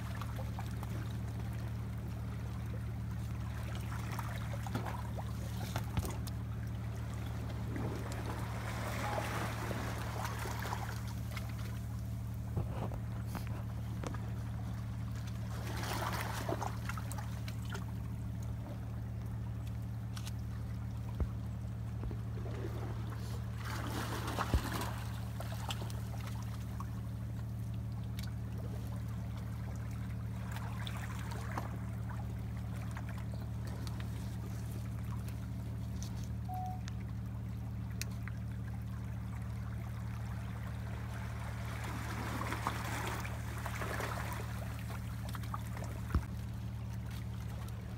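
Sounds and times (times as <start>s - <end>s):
low mechanical hum: 0.0s - 47.9s
sea water washing among rocks: 3.4s - 12.6s, 15.4s - 17.4s, 22.3s - 26.5s, 40.8s - 46.3s.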